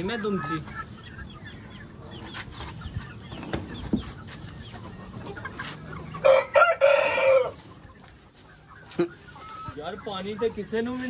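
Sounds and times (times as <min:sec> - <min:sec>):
rooster crowing: 0:06.2 - 0:07.6.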